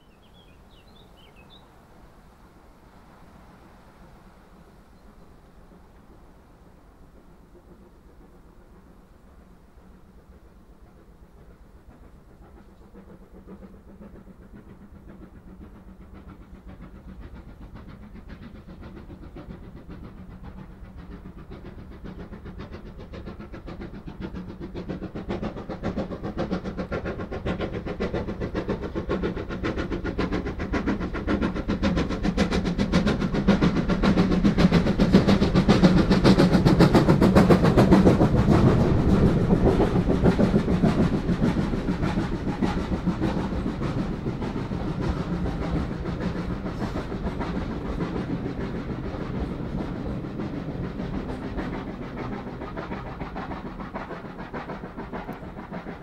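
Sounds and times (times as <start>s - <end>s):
steam locomotive exhaust beats: 0.0s - 56.0s.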